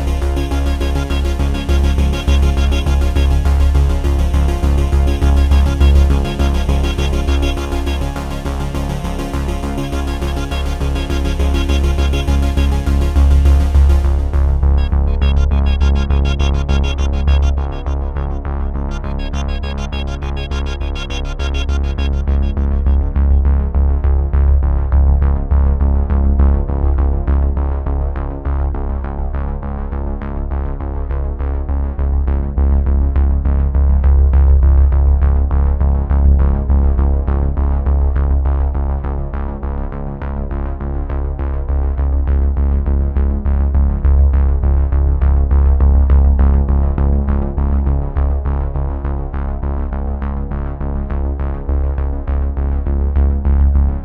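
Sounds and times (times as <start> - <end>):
electronic music: 0.0 - 24.0.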